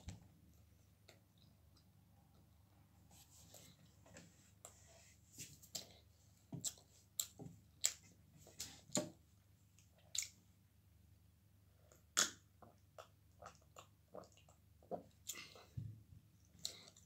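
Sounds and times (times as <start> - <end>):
person chewing with wet smacks: 5.6 - 8.1, 9.8 - 10.4, 11.8 - 15.7, 16.6 - 17.0.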